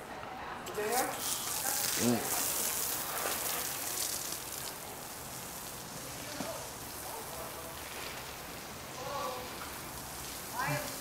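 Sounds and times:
hose nozzle spraying water: 0.7 - 11.0.

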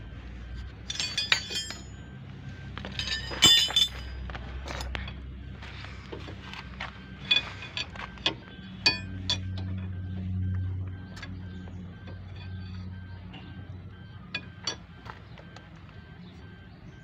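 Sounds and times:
steel bar clinking on brake disc: 0.6 - 2.1, 2.8 - 5.2, 7.2 - 9.9.

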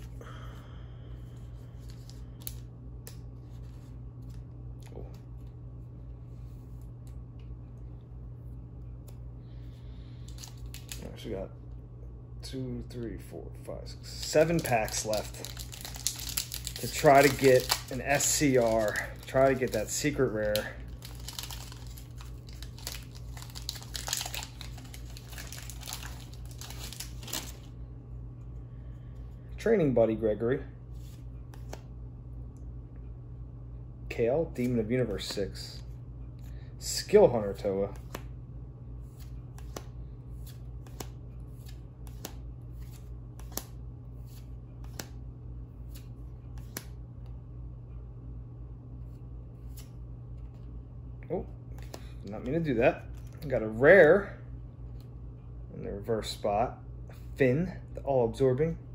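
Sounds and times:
low steady hum: 0.0 - 58.9
trading cards flipping: 1.8 - 5.5, 10.2 - 11.1, 14.2 - 27.7, 31.0 - 31.9, 37.9 - 38.3, 39.0 - 45.2, 45.8 - 47.0, 49.6 - 50.7, 51.7 - 53.4
foil wrapper crinkling: 14.2 - 27.7.

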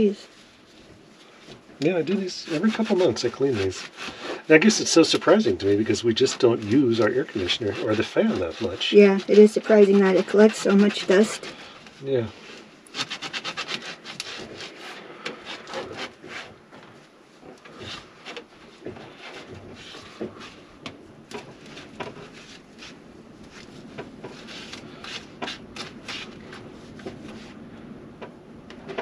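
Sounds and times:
hand rubbing mesh filter: 0.0 - 27.7.

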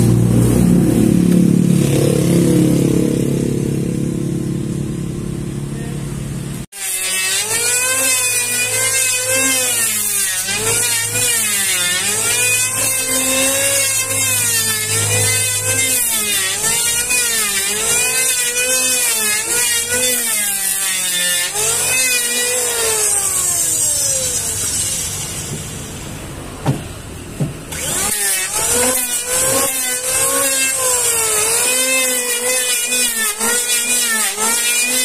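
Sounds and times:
electric planer cutting wood: 6.6 - 25.7, 27.6 - 35.0.

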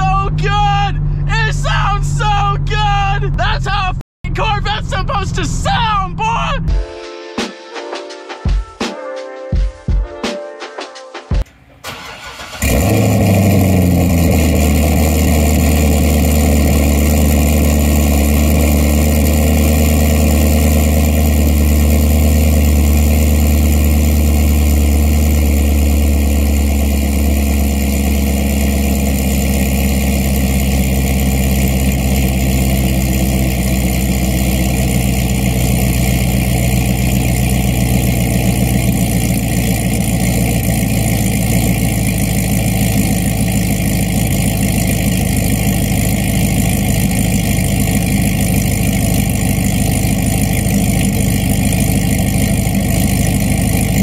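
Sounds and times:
car engine cold start: 11.5 - 54.0
loud exhaust high idle: 11.9 - 54.0.

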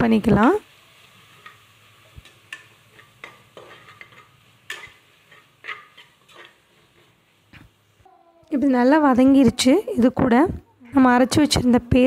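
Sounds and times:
metal spoon stirring and scraping: 1.2 - 7.4.

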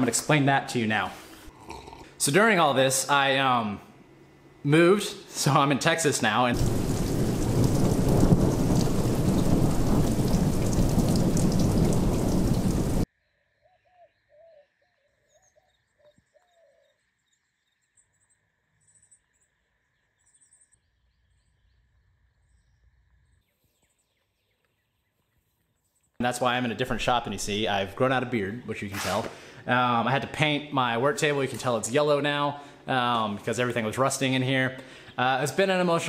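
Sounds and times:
heavy rain: 6.5 - 13.1
thunder rumbling: 6.5 - 13.1.

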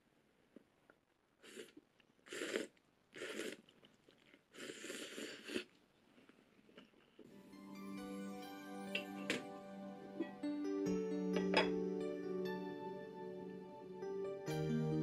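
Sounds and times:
person slurping noodles: 1.4 - 6.8.

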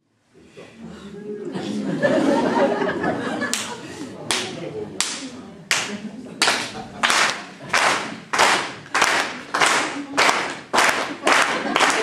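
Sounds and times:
audience clapping in rhythm: 3.4 - 12.0.

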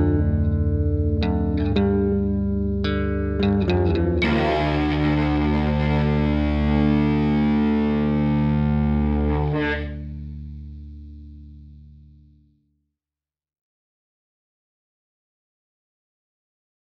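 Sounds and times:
distorted electric guitar: 0.0 - 11.8.

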